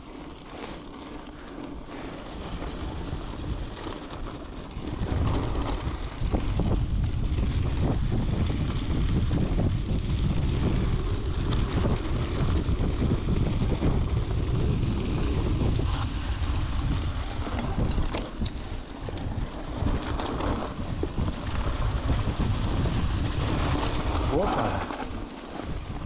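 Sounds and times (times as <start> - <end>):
mountain bike rattling on trail: 0.0 - 26.0
wind buffeting microphone: 1.8 - 26.0.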